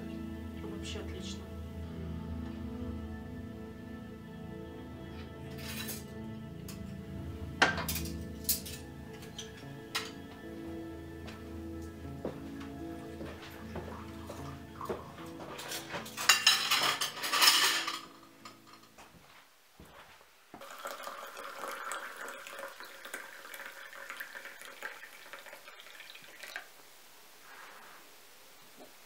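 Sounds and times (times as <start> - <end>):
tea pouring into cups: 13.0 - 18.0, 20.6 - 26.8.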